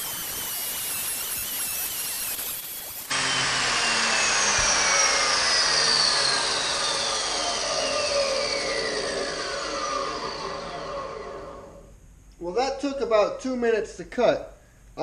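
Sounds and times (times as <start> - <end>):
chop saw grinding steel: 0.0 - 10.8
saw motor spinning down whine: 0.0 - 11.9.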